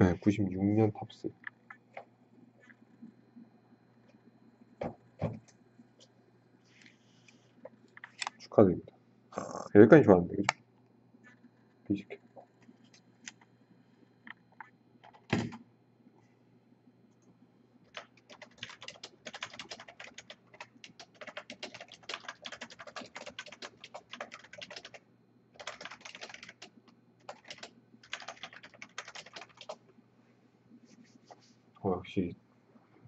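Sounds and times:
typing on computer keyboard: 14.3 - 15.6, 17.9 - 25.0, 25.6 - 29.8.

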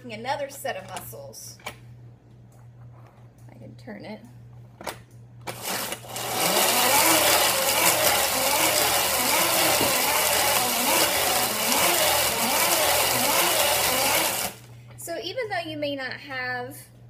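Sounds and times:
hand-crank blender whirring: 5.5 - 14.7.

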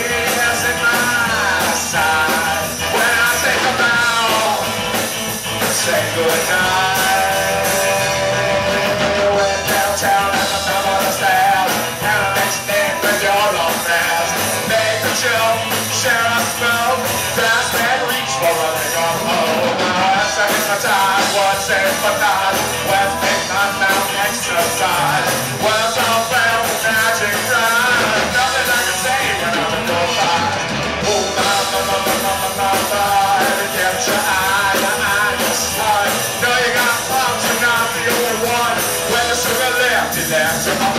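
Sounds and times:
live rock band playing: 0.0 - 40.9.

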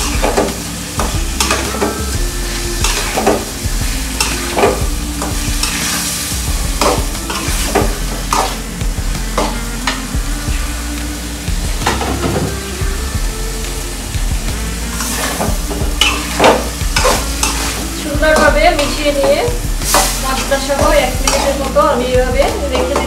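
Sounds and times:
spice paste sizzling: 0.0 - 23.0
metal spatula scraping pan: 2.8 - 6.2, 14.9 - 21.9.

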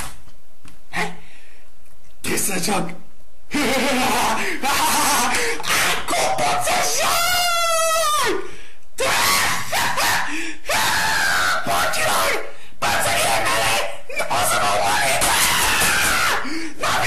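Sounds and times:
boy screaming in rage: 4.6 - 8.4, 9.0 - 17.0.

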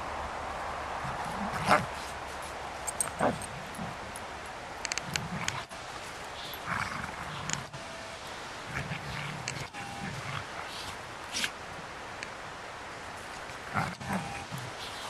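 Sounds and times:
dogs barking and yipping: 2.8 - 4.2.

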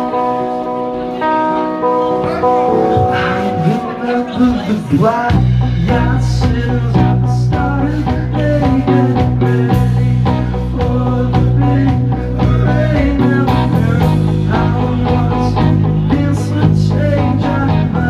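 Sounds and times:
bass guitar: 0.0 - 18.0
electric guitars: 0.0 - 18.0
drum kit: 2.2 - 18.0
man singing: 2.2 - 18.0.

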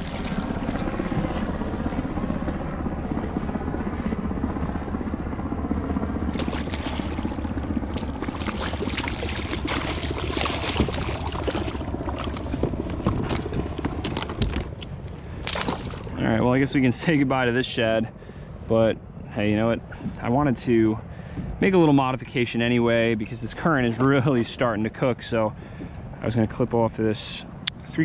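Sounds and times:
fish splashing at surface: 0.0 - 0.8, 6.4 - 14.5, 15.4 - 16.2
wind rumbling on microphone: 0.0 - 18.8.

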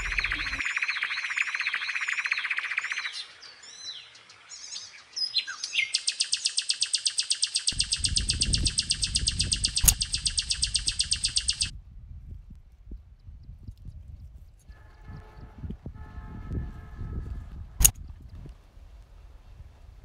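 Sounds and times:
low rumbling noise: 0.0 - 0.6
fast even bird trill: 0.0 - 3.1, 5.8 - 11.7
birds chirping: 0.0 - 11.7
sharp click: 7.7 - 11.7.

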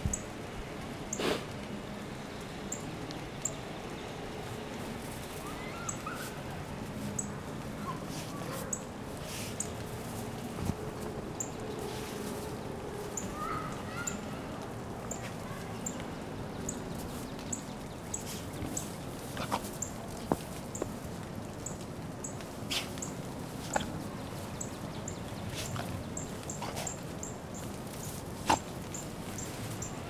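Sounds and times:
snow crunching: 4.4 - 14.1
dog snorting: 19.2 - 19.8, 23.6 - 24.1, 25.5 - 27.1, 28.4 - 28.8.

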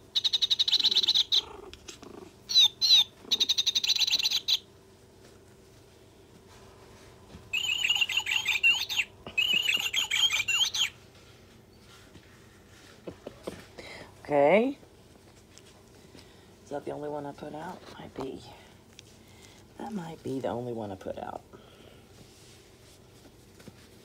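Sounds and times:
toy electronic bird chirps: 0.1 - 1.4, 2.5 - 4.6, 7.5 - 11.0.

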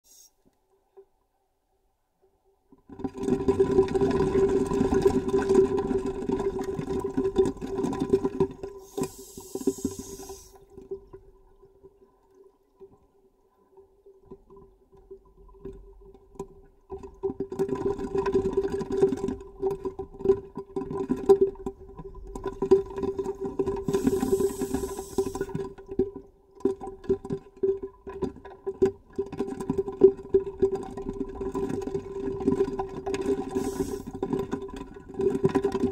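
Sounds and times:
regulator inhalation hiss: 0.0 - 0.4, 8.8 - 10.6, 23.9 - 25.5, 33.5 - 34.2
bubbles gurgling underwater: 3.1 - 8.8.

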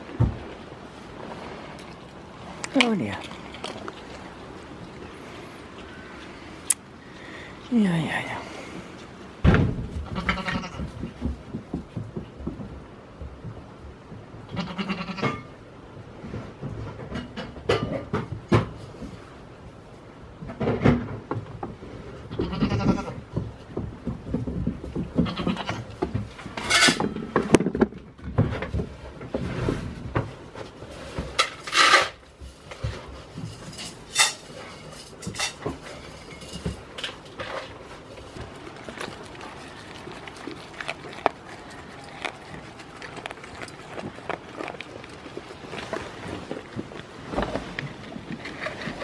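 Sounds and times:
knocks and rustling on straw: 22.4 - 49.0.

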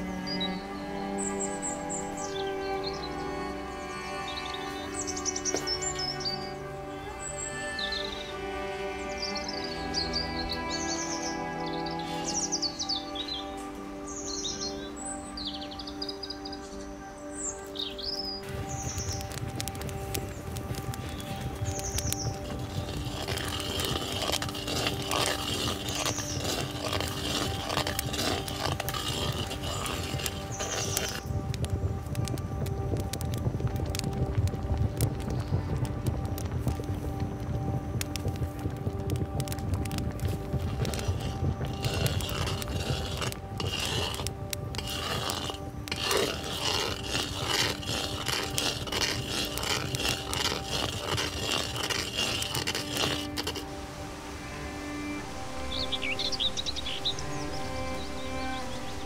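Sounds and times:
background music with held tones: 0.0 - 59.0
metal spatula scraping iron pot: 21.2 - 31.3, 40.7 - 53.6.

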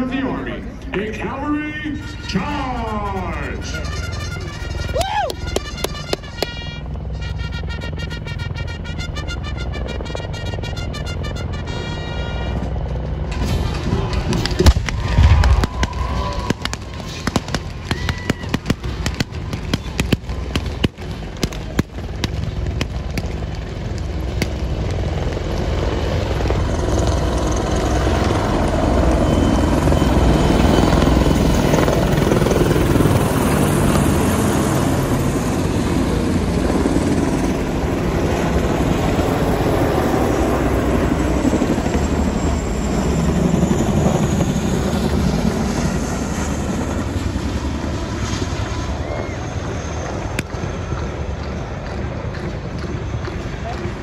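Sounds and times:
helicopters flying overhead: 0.0 - 54.0
sharp bangs: 13.3 - 24.8.

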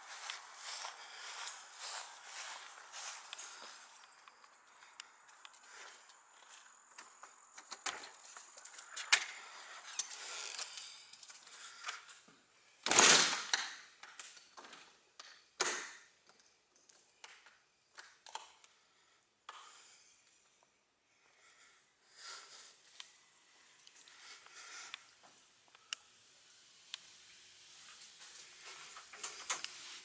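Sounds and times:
footsteps on carpet: 0.0 - 4.0
footsteps: 0.0 - 7.4.

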